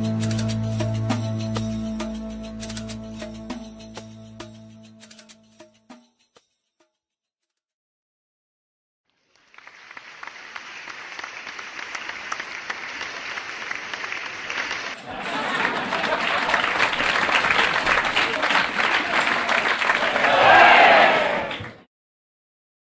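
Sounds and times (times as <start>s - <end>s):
crowd applauding: 9.2s - 21.8s.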